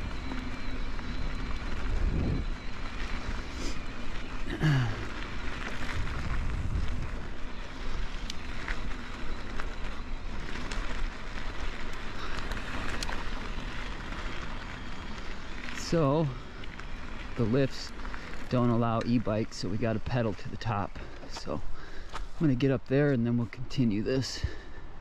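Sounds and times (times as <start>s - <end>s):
bike tyres rolling over gravel: 0.0s - 25.0s
wind on microphone: 1.7s - 2.6s, 5.8s - 7.4s.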